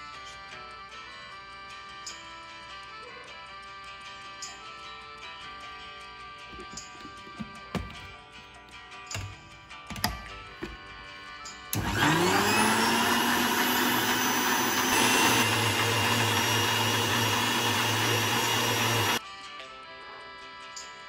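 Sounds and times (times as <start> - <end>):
faint background music: 0.0 - 21.0
blender motor whining: 11.7 - 19.2.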